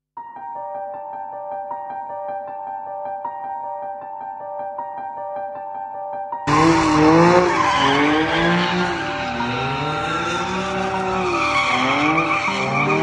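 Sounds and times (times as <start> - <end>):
car engine revving: 6.5 - 13.0
tyre screech: 6.5 - 13.0.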